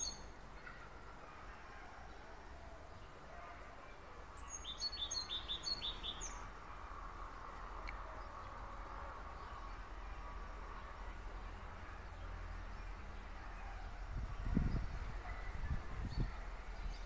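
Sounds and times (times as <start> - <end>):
small bird chirping: 4.4 - 6.5.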